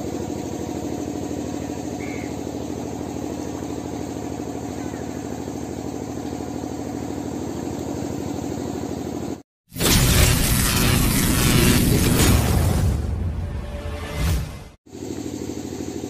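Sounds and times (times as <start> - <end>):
engine idling: 0.0 - 9.4, 14.9 - 16.0.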